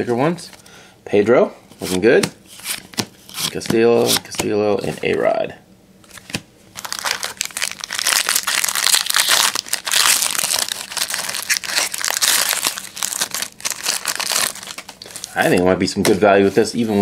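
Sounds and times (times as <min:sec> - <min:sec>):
foil wrapper crinkling and tearing: 0:06.1 - 0:15.6.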